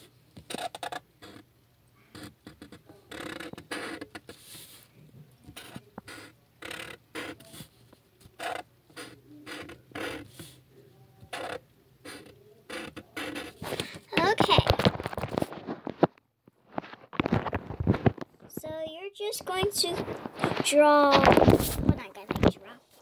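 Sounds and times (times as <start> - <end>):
marker scratching on paper: 2.1 - 4.8, 5.5 - 7.8, 8.4 - 10.6, 11.3 - 14.8.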